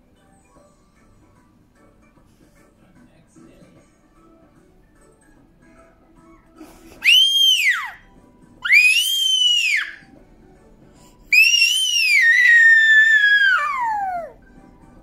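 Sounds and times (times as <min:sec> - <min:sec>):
toddler squealing: 0:07.0 - 0:08.0, 0:08.6 - 0:10.0, 0:11.3 - 0:14.4.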